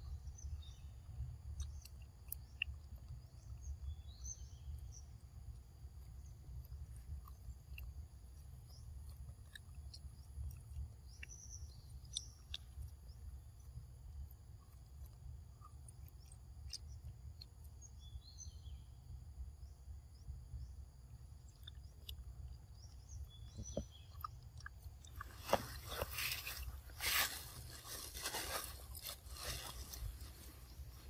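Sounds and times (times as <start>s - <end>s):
bird chirps: 0.0s - 5.4s, 6.2s - 31.0s
loud crunching and rustling: 25.0s - 31.0s.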